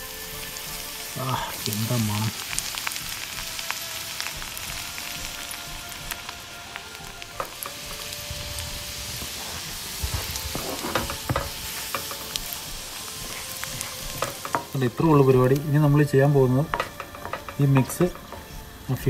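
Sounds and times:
butter sizzling in pan: 0.0s - 19.0s
sharp popping: 7.0s - 15.7s, 16.5s - 18.8s.

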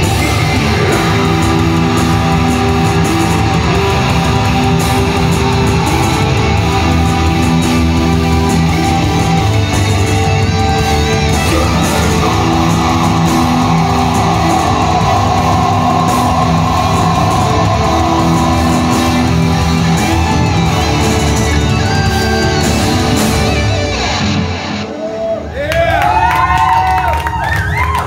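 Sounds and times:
live heavy metal band: 0.0s - 26.8s.

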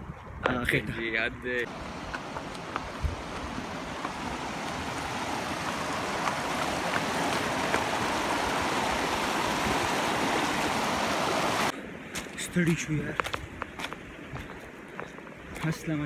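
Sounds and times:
stream rushing over rocks: 1.7s - 11.8s.

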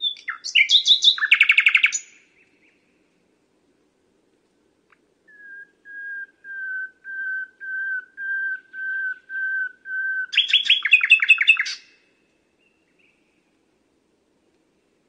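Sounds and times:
nightingale singing: 0.0s - 2.9s, 4.9s - 13.4s.

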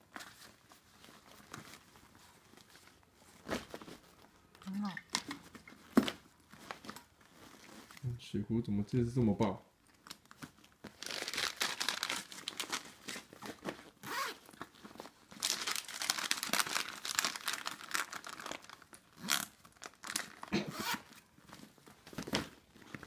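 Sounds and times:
plastic packets crinkling: 9.9s - 23.0s.

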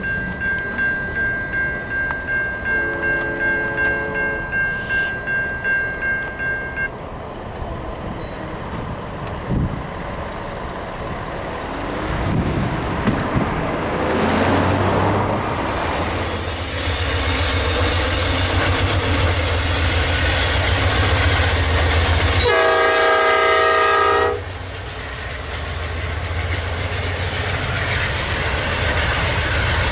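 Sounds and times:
electronic crossing bell ringing: 0.0s - 6.9s
cars and trucks driving past: 6.9s - 17.6s.

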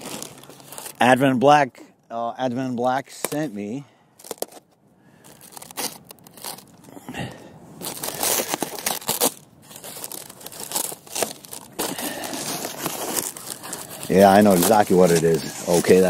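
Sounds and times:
knife slitting packaging: 0.0s - 1.0s, 5.2s - 6.7s, 7.8s - 16.0s
packing wrap crinkling and tearing: 0.0s - 1.2s, 2.8s - 16.0s.

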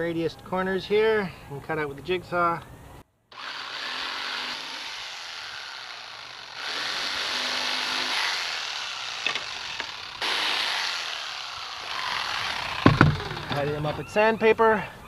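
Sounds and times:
jigsaw cutting wood: 3.3s - 13.8s.

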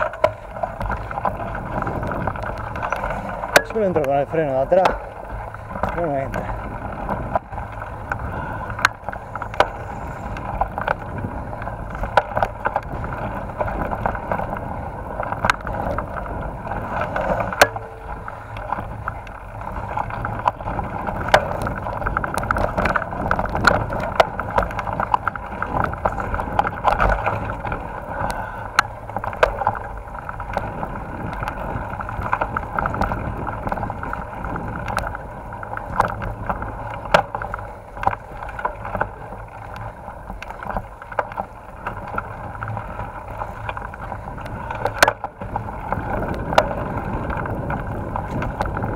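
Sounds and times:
bike rattling over dirt trail: 0.0s - 48.9s
sharp knocks and clicks: 17.1s - 19.3s.

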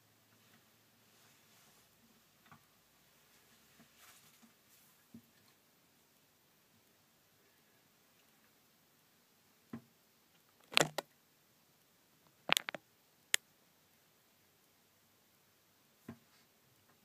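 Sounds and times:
phone handling clicks and knocks: 10.7s - 11.0s, 12.5s - 12.8s.

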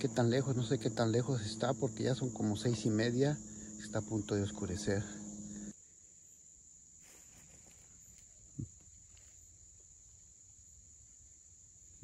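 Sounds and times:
crickets chirring: 0.0s - 12.0s
footsteps rustling through leaves: 7.0s - 8.3s.

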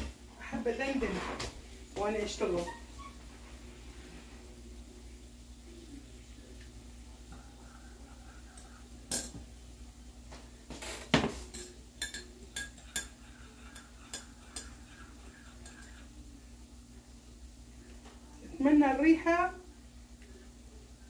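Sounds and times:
metal spoon clinking in mug: 11.5s - 14.8s.

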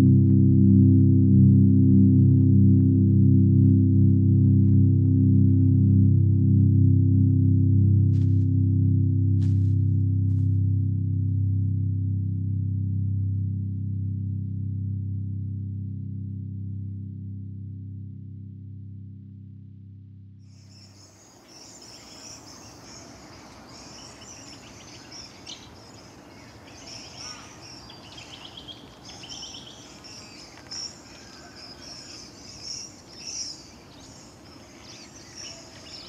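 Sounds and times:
low music chord: 0.0s - 20.4s
bird chirps: 20.5s - 36.0s.

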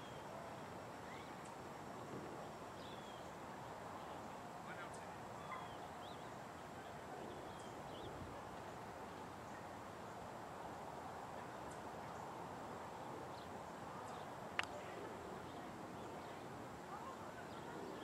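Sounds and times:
faint bird chirps: 0.0s - 1.6s, 2.4s - 3.4s, 4.0s - 8.8s
steady low hiss: 0.0s - 18.0s.

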